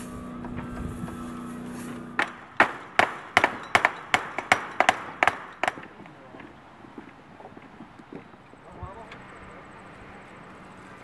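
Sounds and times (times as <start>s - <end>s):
hammer blows: 0.0s - 8.3s
steady low hum: 0.0s - 11.0s.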